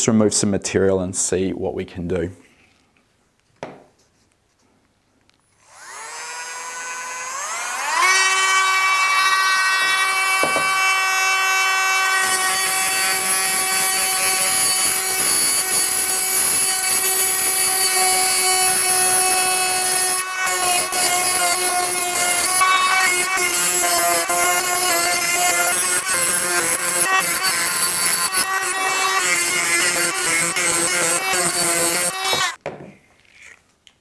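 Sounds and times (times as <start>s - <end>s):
rotary tool whine: 5.6s - 32.6s.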